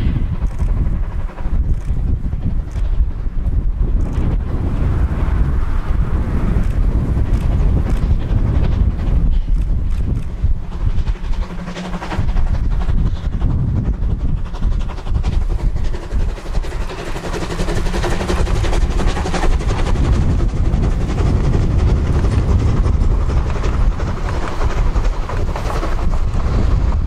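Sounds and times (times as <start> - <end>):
coaches rolling over rails: 0.0 - 27.0
steam locomotive exhaust beats: 0.0 - 27.0.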